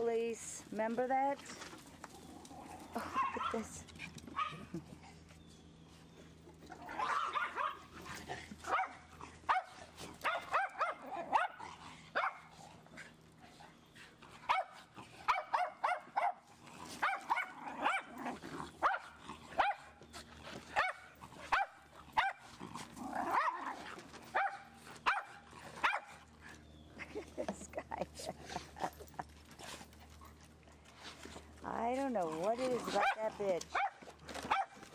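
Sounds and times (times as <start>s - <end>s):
dogs barking: 3.0s - 4.7s, 6.8s - 8.0s, 8.6s - 12.6s, 14.4s - 20.0s, 20.7s - 26.4s, 32.4s - 34.9s.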